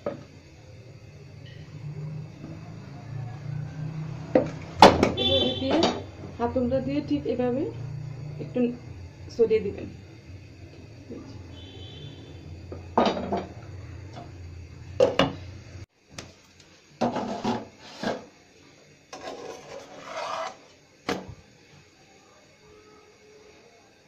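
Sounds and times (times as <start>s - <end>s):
scraping strokes on frying pan: 17.0s - 18.3s, 19.1s - 20.8s.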